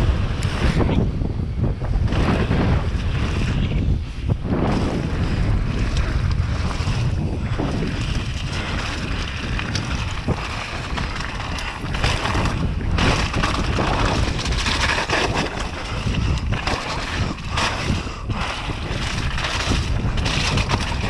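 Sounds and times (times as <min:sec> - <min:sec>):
wind rush on microphone: 0:00.0 - 0:21.0
bike clattering: 0:04.5 - 0:21.0
tyres crunching on stones: 0:06.3 - 0:21.0.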